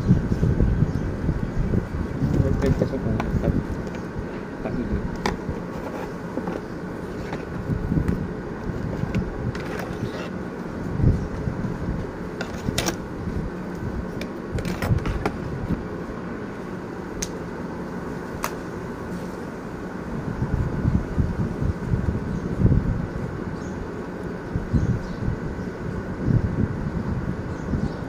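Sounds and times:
phone handling knocks and rubbing: 0:05.2 - 0:07.6.

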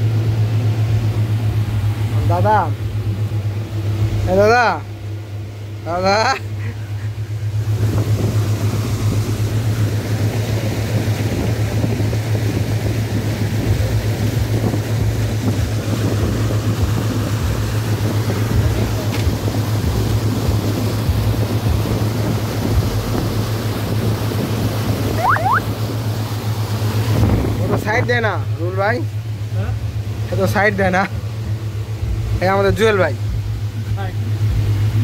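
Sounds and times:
boat engine humming: 0:00.0 - 0:35.0
wake splashing along hull: 0:00.0 - 0:35.0.

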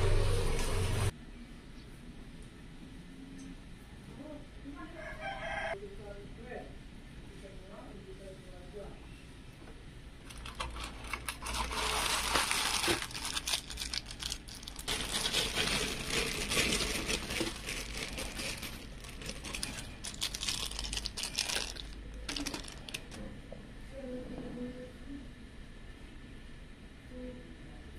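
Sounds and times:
plastic bag crinkling: 0:10.3 - 0:23.2
small parts clicking: 0:10.3 - 0:23.2.

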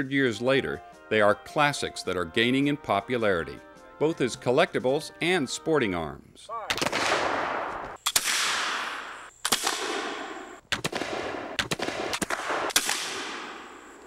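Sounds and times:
musket shots: 0:06.7 - 0:14.0.

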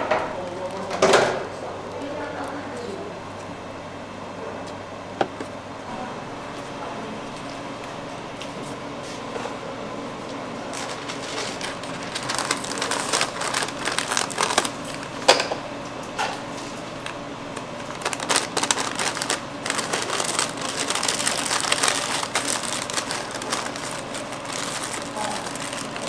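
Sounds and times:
wrapping paper rustling: 0:10.6 - 0:15.4, 0:16.6 - 0:26.0.

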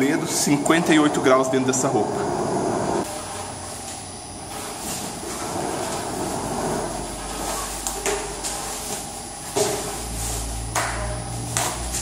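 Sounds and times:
low steady hum: 0:00.0 - 0:12.0
protective coverall rustling: 0:03.0 - 0:12.0.

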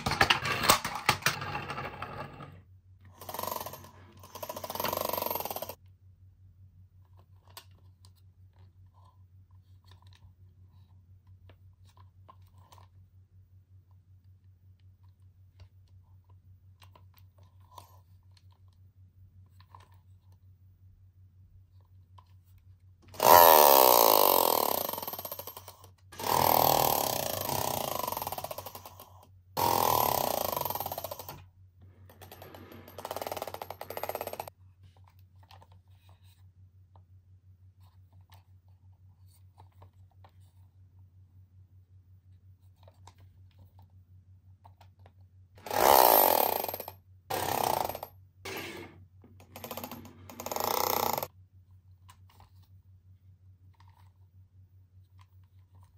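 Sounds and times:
toy truck motor whirring: 0:23.1 - 0:24.8, 0:45.6 - 0:46.6, 0:47.4 - 0:51.3.

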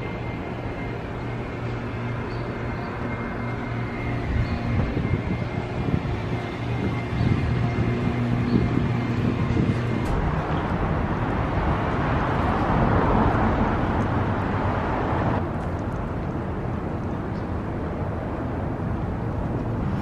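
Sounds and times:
vehicle passing: 0:00.0 - 0:15.4
street traffic road noise: 0:00.0 - 0:20.0.

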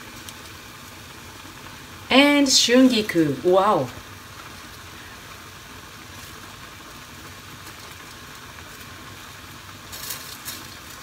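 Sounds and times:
broth simmering hiss: 0:00.0 - 0:11.0
leafy greens rustling: 0:09.7 - 0:11.0.

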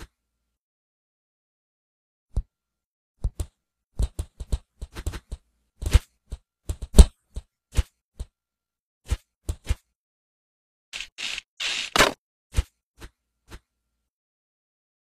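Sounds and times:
cartoon punch and kick hits: 0:11.8 - 0:12.2.

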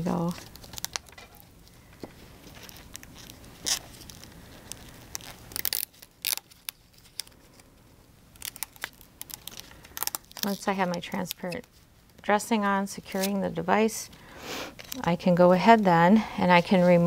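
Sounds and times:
plastic film crinkling: 0:00.0 - 0:12.3, 0:14.7 - 0:15.3
film peeling and rustling: 0:00.0 - 0:15.8.

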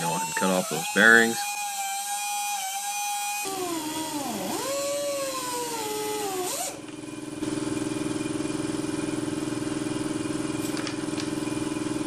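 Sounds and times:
angle grinder cutting metal: 0:00.0 - 0:06.8
pulsing machine hum: 0:03.4 - 0:12.0.

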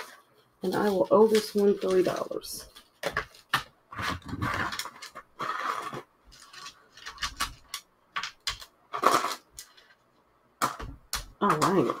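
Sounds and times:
paper rustling: 0:00.0 - 0:07.8.

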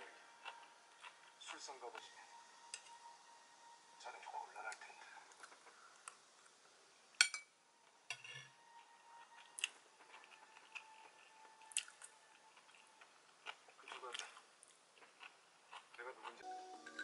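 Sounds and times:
person chewing: 0:00.0 - 0:02.1, 0:08.6 - 0:16.5.

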